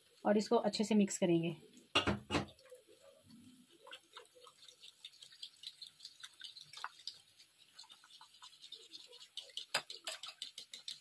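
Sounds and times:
spoon stirring sauce in a bowl: 0:02.3 - 0:11.0.

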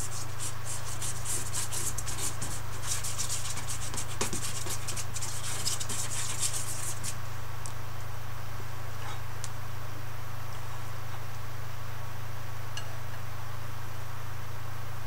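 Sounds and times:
paintbrush scrubbing strokes: 0:00.0 - 0:07.2
steady low hum: 0:00.0 - 0:15.0.

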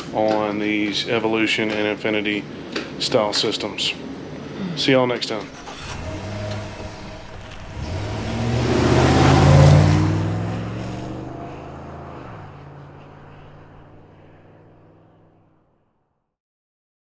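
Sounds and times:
whoosh: 0:05.5 - 0:15.2.

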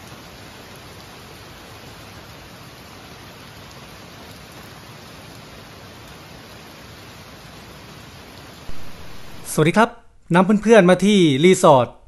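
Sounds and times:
rain on foliage and paving: 0:00.0 - 0:09.8.

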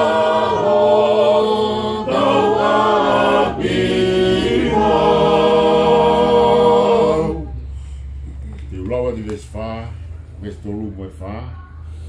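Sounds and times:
group singing a hymn a cappella: 0:00.0 - 0:07.8.

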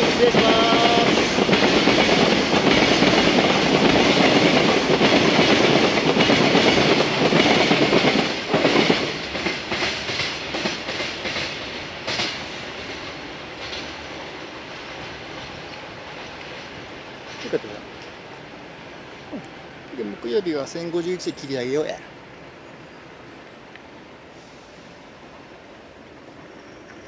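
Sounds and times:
train wheels clattering over rail joints: 0:00.0 - 0:18.1.

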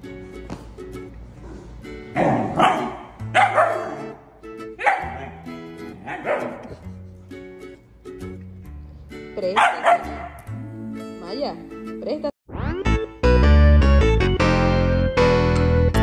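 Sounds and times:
ukulele music: 0:00.0 - 0:12.3
dog barking: 0:02.2 - 0:04.2, 0:04.8 - 0:06.8, 0:09.6 - 0:10.5.

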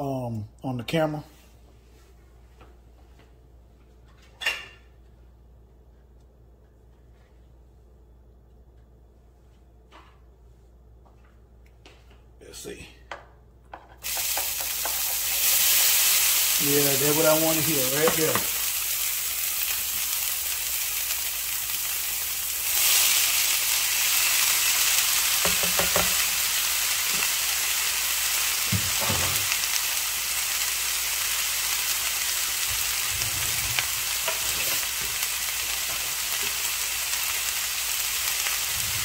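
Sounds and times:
corn kernels sizzling in a pan: 0:14.0 - 0:39.0.

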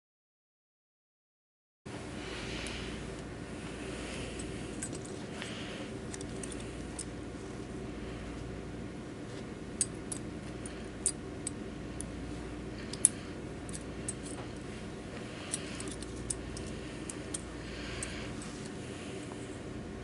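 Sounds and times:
steady low hum: 0:01.9 - 0:20.0
metallic clicks of syringe handling: 0:12.8 - 0:14.6, 0:15.4 - 0:18.2.

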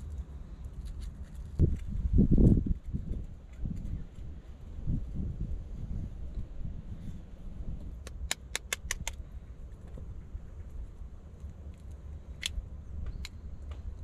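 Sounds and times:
low rumble: 0:00.0 - 0:08.1.

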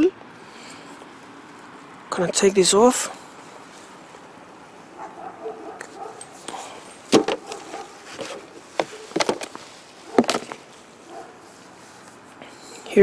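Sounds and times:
packaging rustles and knocks: 0:07.1 - 0:10.7.

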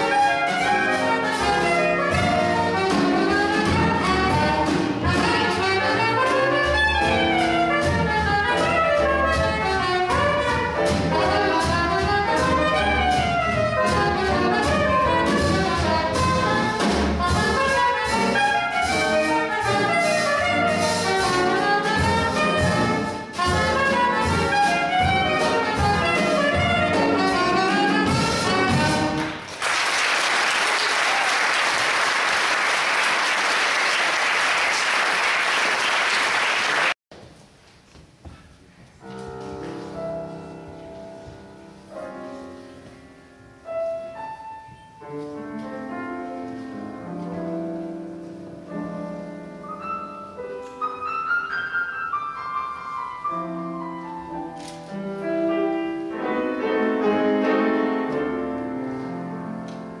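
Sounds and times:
piano playing: 0:00.0 - 0:29.6, 0:39.0 - 1:00.0
audience applauding: 0:29.2 - 0:37.0.

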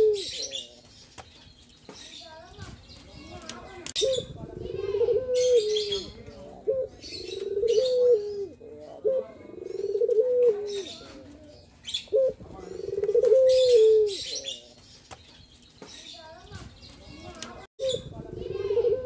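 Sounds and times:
dove cooing and purring: 0:00.0 - 0:00.4, 0:04.0 - 0:14.2, 0:18.4 - 0:19.0.

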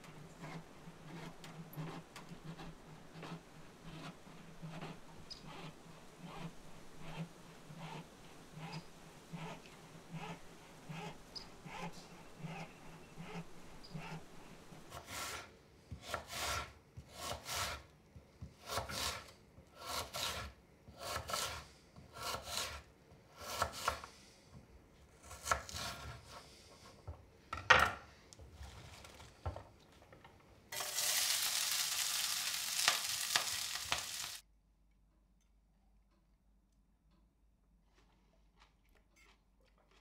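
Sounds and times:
spoon scraping cooking pan: 0:00.0 - 0:14.2, 0:30.7 - 0:34.4
loud steady hiss: 0:30.8 - 0:34.4.

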